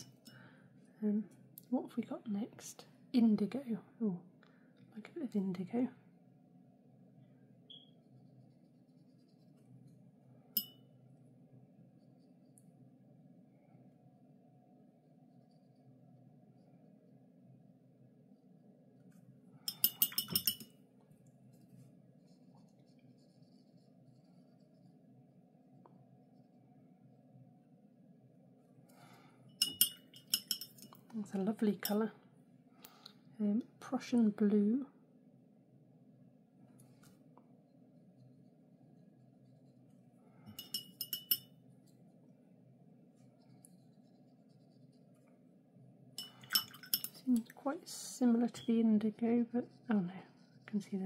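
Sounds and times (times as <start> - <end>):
steady low hum: 0.0 - 51.0
brush scratching on paper: 8.0 - 10.0, 21.5 - 25.0, 43.1 - 45.2, 49.1 - 51.0
paintbrush clinking against glass jar: 10.6 - 10.9, 19.6 - 20.7, 29.5 - 31.0, 40.4 - 41.6, 46.2 - 47.2.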